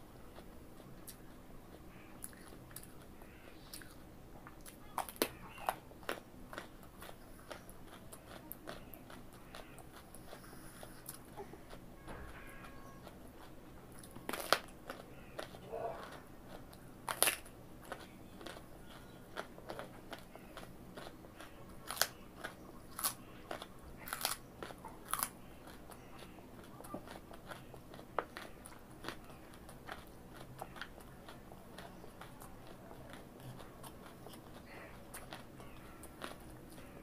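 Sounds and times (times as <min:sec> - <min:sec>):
carrot crunching while chewed: 0:00.2 - 0:37.0.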